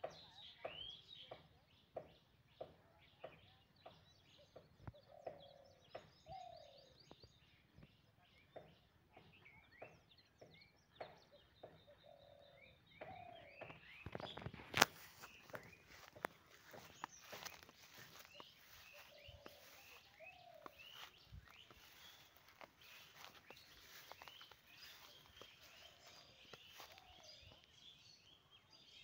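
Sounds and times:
birds chirping: 0:00.0 - 0:29.0
soft footsteps: 0:13.6 - 0:28.0.

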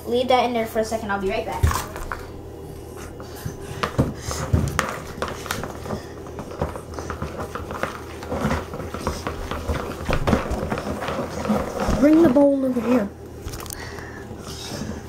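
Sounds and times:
chopsticks stirring slime: 0:01.6 - 0:15.0
sticks knocking against bowl: 0:03.1 - 0:12.3.

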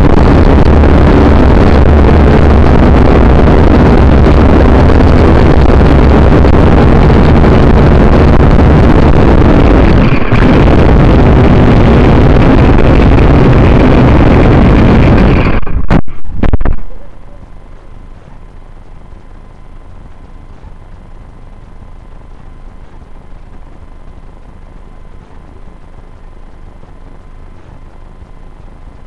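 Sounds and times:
rushing wind noise: 0:00.0 - 0:18.6
drone motors and propellers: 0:00.0 - 0:29.0.

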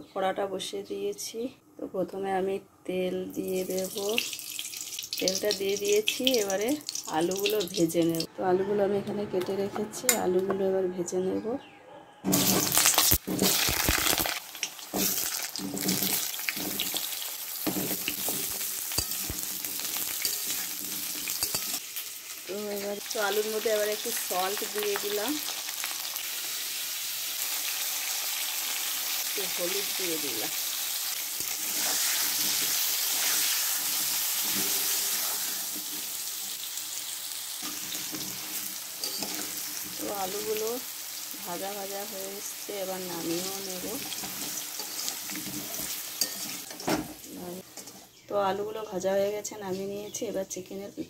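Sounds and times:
potatoes frying in hot oil: 0:03.4 - 0:08.3, 0:12.3 - 0:47.7.

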